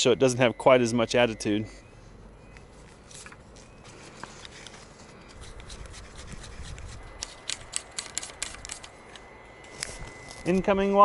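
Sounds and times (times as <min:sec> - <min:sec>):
hands rubbing a garden hose: 0:03.1 - 0:08.8.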